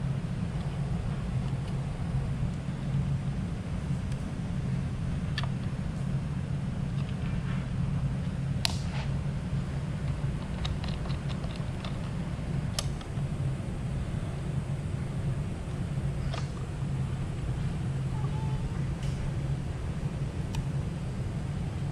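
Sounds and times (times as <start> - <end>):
steady low hum: 0.0 - 21.9.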